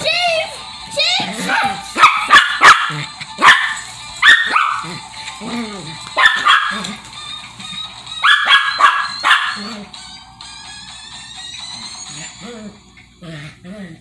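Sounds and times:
small dog barking: 0:01.5 - 0:04.9, 0:06.2 - 0:06.9, 0:08.2 - 0:09.7.

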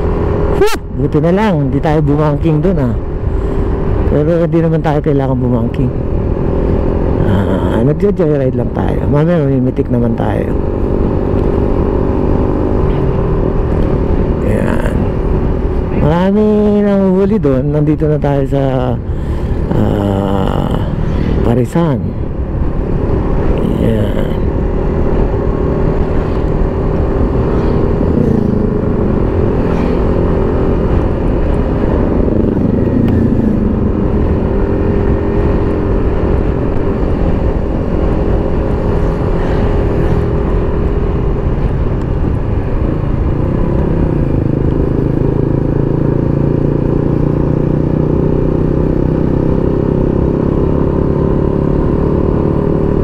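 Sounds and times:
wind and road noise: 0:00.0 - 0:53.0
motorcycle engine running: 0:22.2 - 0:53.0.

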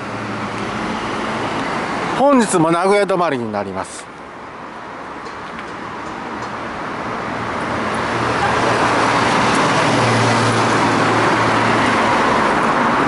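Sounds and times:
vehicle approaching on road: 0:04.4 - 0:13.0.

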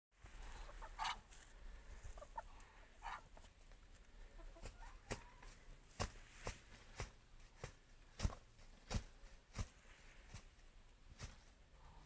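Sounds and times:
bird clucking calls: 0:00.4 - 0:01.4, 0:04.2 - 0:05.7
birds scuffling slaps: 0:03.4 - 0:11.6.

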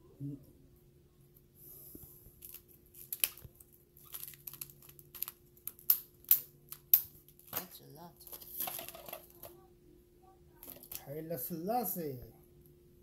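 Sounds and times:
plastic pages crinkling: 0:02.4 - 0:05.9, 0:06.7 - 0:09.5.

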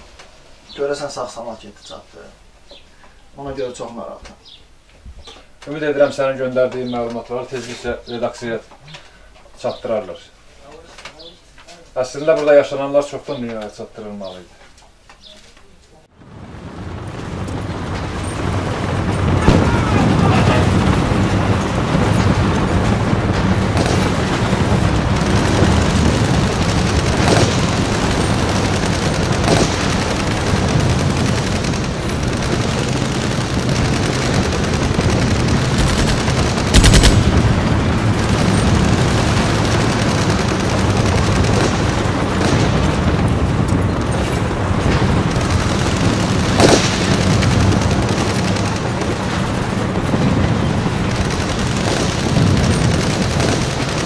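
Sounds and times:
loud shots or blasts: 0:17.0 - 0:54.0
automatic rifle fire: 0:19.4 - 0:20.7, 0:23.6 - 0:43.3, 0:45.2 - 0:49.9, 0:51.1 - 0:54.0.

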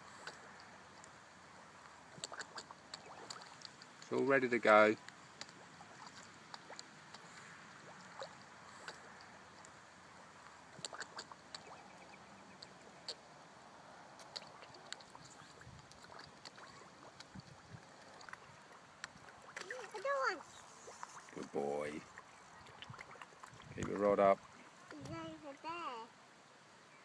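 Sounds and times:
fish splashing at surface: 0:14.2 - 0:21.5.

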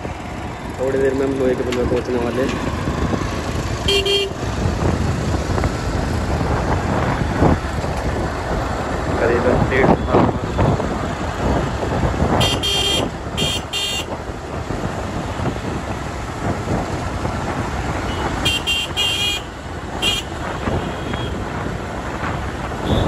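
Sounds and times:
road and wind rush: 0:00.0 - 0:23.0
vehicle horn toots: 0:03.8 - 0:04.4, 0:12.4 - 0:14.1, 0:18.1 - 0:21.4, 0:22.8 - 0:23.0.

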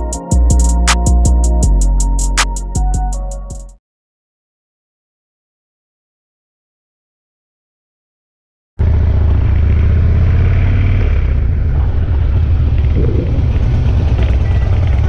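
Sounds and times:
motorcycle engine running at low revs: 0:08.8 - 0:15.0.

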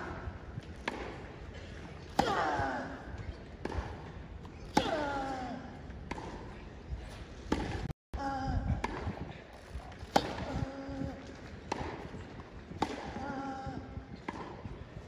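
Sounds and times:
racket hitting tennis ball: 0:00.2 - 0:05.4, 0:06.0 - 0:06.6, 0:07.4 - 0:07.9, 0:08.8 - 0:09.2, 0:10.1 - 0:10.6, 0:11.7 - 0:14.8.

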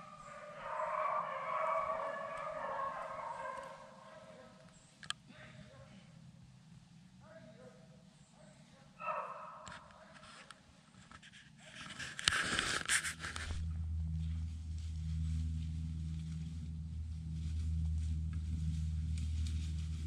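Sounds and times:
beagle baying: 0:00.0 - 0:04.6, 0:09.0 - 0:09.9
rustling in dry brush: 0:11.2 - 0:20.0
steady low hum: 0:12.8 - 0:20.0.

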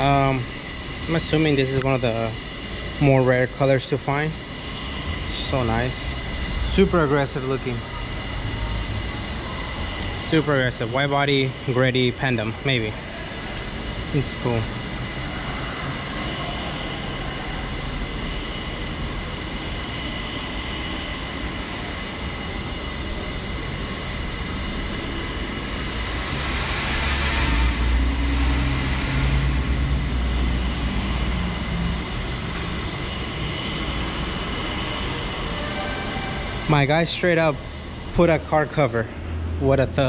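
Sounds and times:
faint constant tones: 0:00.0 - 0:40.0
steady hum and hiss: 0:00.0 - 0:40.0
vehicle rumbling past echoing: 0:26.0 - 0:40.0.

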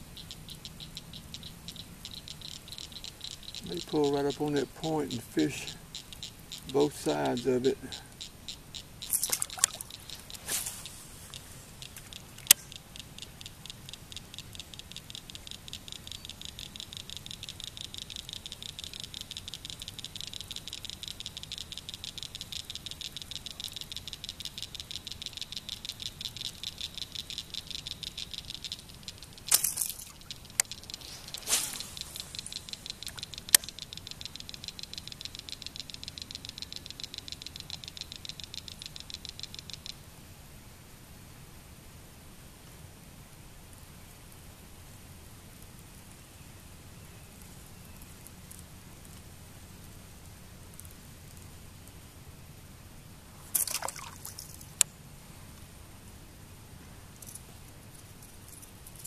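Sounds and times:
sharp clicks: 0:00.0 - 0:40.0
fishing reel ticking: 0:00.1 - 0:40.0
short swishes: 0:30.9 - 0:32.5.

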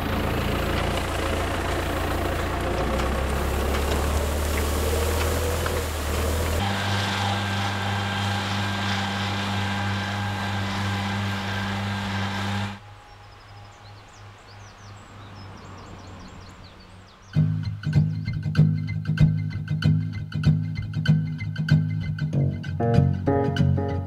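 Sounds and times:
tractor engine droning: 0:00.0 - 0:19.6
birds chirping: 0:08.1 - 0:18.8.

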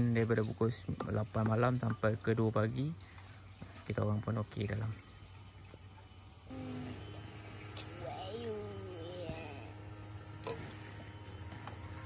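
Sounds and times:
high-pitched insect chorus: 0:00.0 - 0:12.0
short wavering voice: 0:07.8 - 0:09.8.

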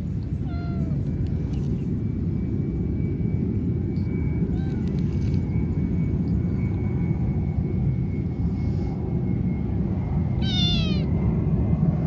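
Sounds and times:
steady low rumble: 0:00.0 - 0:12.0
kitten meowing: 0:00.4 - 0:01.0, 0:04.5 - 0:04.9, 0:10.4 - 0:11.1.

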